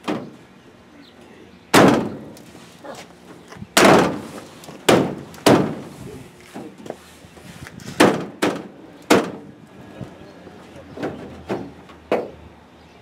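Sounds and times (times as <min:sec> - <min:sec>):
sharp knocks on truck bed rail: 0:00.0 - 0:00.4, 0:01.7 - 0:02.3, 0:03.8 - 0:05.9, 0:08.0 - 0:09.5, 0:11.0 - 0:12.4.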